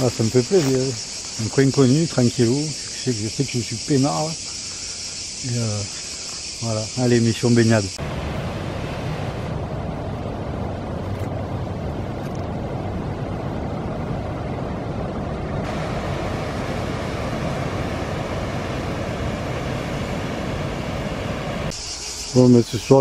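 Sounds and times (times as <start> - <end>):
wake washing along bank: 8.0 - 21.7
ship engine drone: 8.0 - 21.8.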